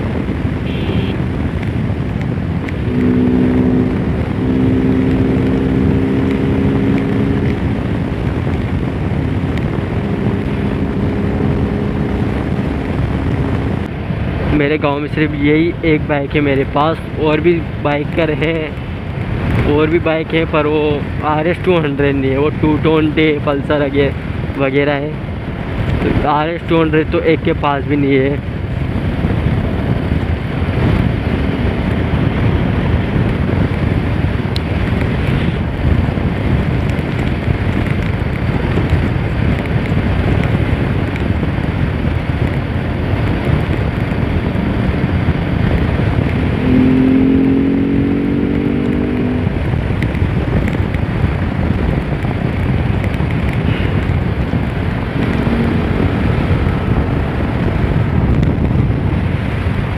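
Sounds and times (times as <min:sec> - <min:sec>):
motorcycle running: 0:00.0 - 0:59.9
wind rushing over microphone: 0:00.0 - 0:59.9
pitched tone: 0:46.5 - 0:49.4, 0:55.2 - 0:56.3.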